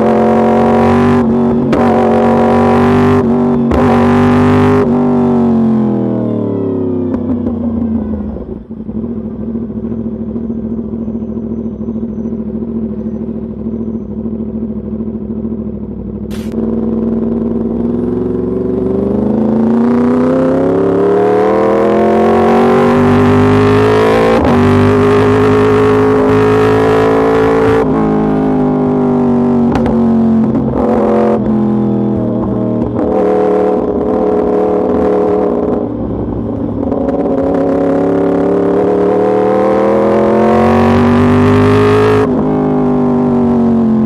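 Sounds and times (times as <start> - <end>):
motorcycle engine: 0.0 - 44.0
sharp click: 16.3 - 16.6.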